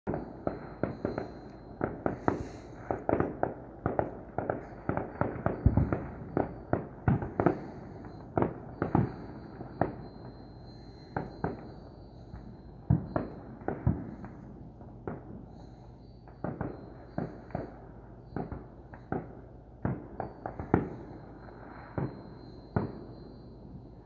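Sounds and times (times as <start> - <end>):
distant fireworks bangs and pops: 0.1 - 23.4.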